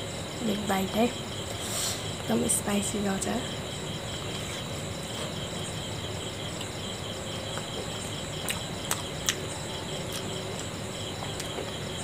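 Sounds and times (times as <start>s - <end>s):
insects chirping: 0.0s - 12.0s
person chewing: 8.4s - 9.4s, 10.1s - 10.7s.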